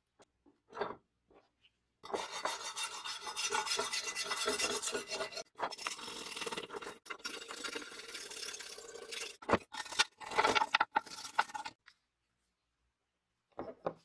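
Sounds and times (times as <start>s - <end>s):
bristle brush scrubbing metal: 2.1s - 5.5s.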